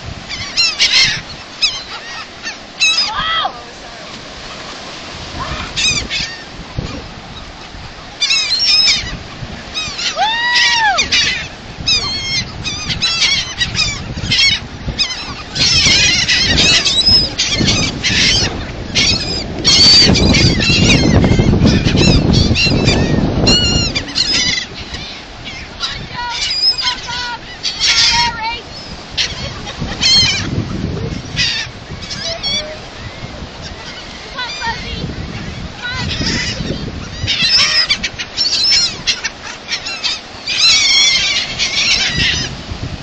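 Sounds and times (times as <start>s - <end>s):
gulls calling: 0.0s - 42.7s.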